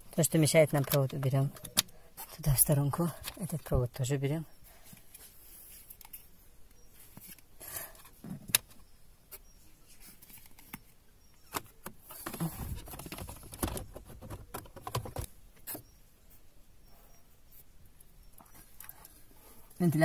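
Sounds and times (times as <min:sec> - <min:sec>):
plastic parts clicking and rustling: 0:10.2 - 0:15.8.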